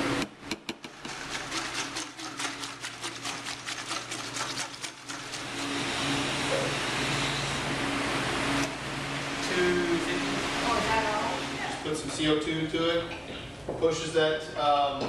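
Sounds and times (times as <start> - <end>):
steady background hum: 0.0 - 15.0
stirrer scraping plastic bucket: 0.9 - 5.9.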